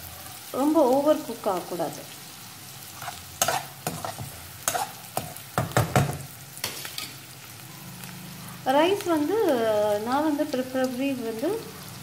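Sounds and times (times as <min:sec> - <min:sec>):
onions sizzling in oil: 0:00.0 - 0:12.0
spatula scraping a wok: 0:02.8 - 0:05.8, 0:06.6 - 0:07.3.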